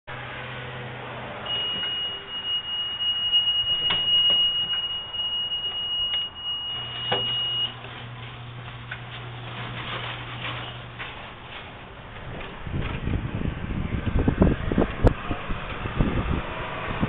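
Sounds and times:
reverse warning beep: 0:01.5 - 0:07.8.

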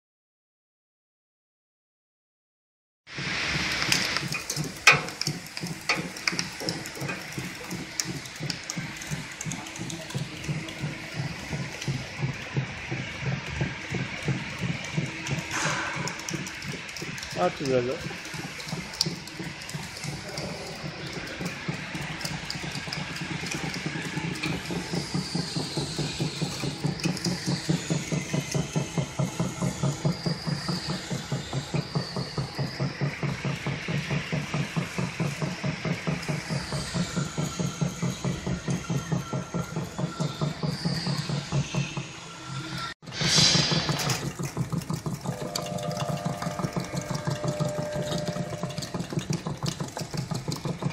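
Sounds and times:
card feeder and conveyor running: 0:03.2 - 0:42.1, 0:43.0 - 0:50.9
faint high whine: 0:45.4 - 0:48.9.

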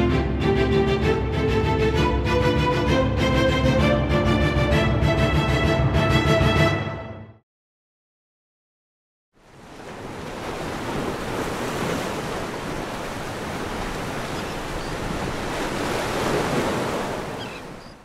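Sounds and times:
surf washing onto beach: 0:09.4 - 0:17.9.

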